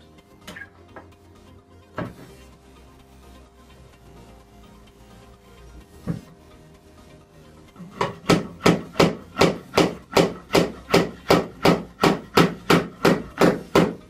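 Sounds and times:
hammer driving nail into wood: 0:08.0 - 0:14.0.

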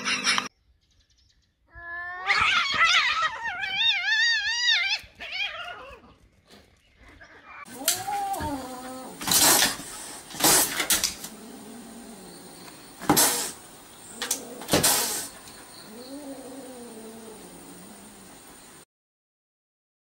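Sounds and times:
cat meowing: 0:07.6 - 0:09.2.

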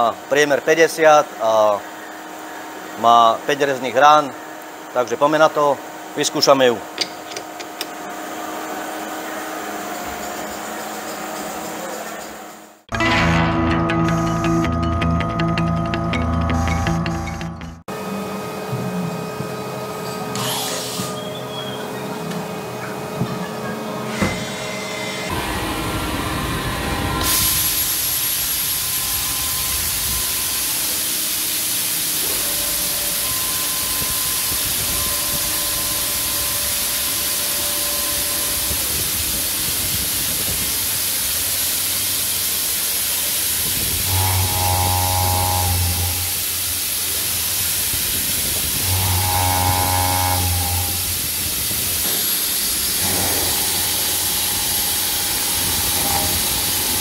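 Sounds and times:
machine hissing: 0:24.1 - 0:57.0
milling cutter cutting metal: 0:44.0 - 0:46.7, 0:48.8 - 0:51.3, 0:52.9 - 0:57.0.

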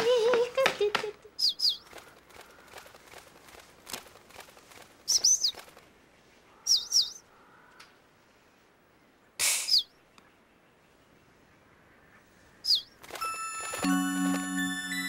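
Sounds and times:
faint soft clicks: 0:07.7 - 0:08.0
cartoon bird chirps: 0:09.4 - 0:09.9.

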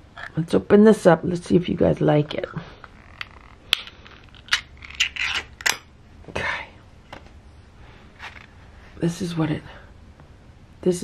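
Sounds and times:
can lid scraping tear: 0:04.3 - 0:05.8.

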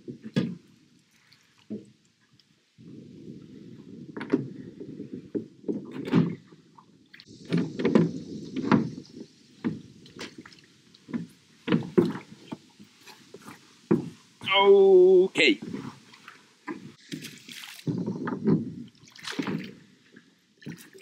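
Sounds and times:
oars knocking in oarlocks: 0:07.3 - 0:14.5, 0:15.6 - 0:19.8.

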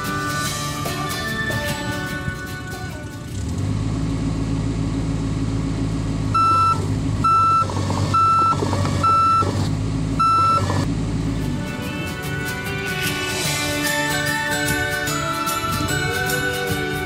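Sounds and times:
excavator diesel engine running: 0:00.0 - 0:17.0
excavator travel alarm beeps: 0:06.4 - 0:09.6, 0:10.2 - 0:10.9.

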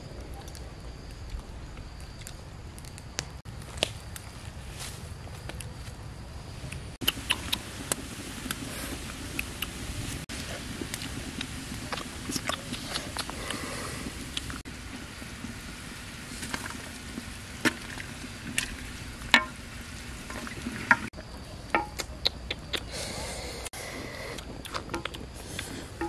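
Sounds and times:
pot simmering with hiss: 0:00.0 - 0:26.0.

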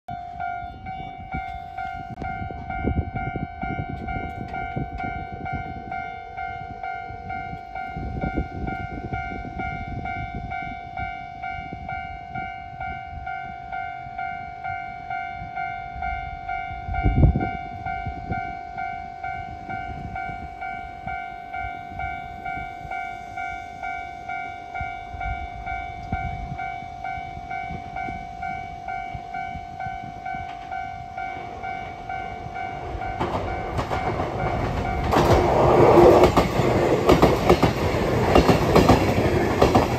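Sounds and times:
electric train running: 0:17.0 - 0:39.9.

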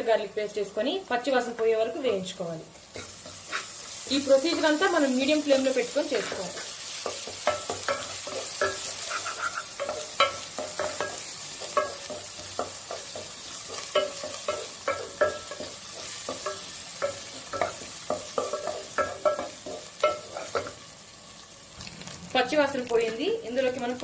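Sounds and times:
frying sizzle: 0:00.0 - 0:24.0
spatula scraping a pan: 0:02.9 - 0:04.8, 0:06.0 - 0:20.8.

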